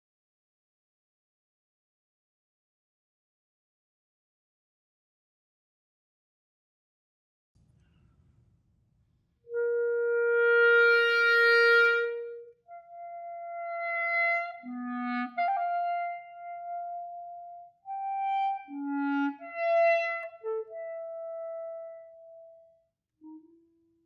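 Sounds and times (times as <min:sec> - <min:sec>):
solo clarinet playing: 0:09.5 - 0:24.0.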